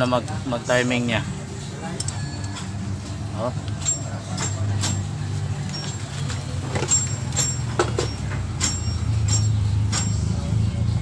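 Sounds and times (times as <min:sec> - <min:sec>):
vehicle engine humming: 0:00.0 - 0:11.0
wrench clinking on metal: 0:03.7 - 0:05.1, 0:05.7 - 0:10.4.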